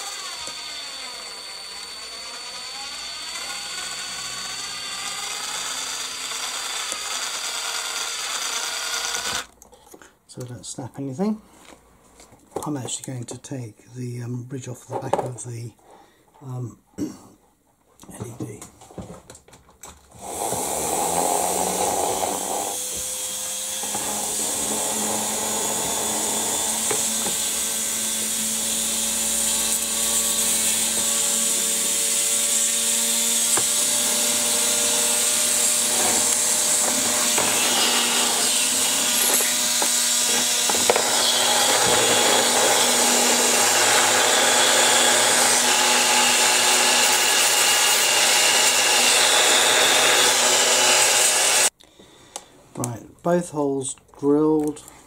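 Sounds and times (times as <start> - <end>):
rotary tool grinding plastic: 0.0 - 9.5, 20.2 - 51.7.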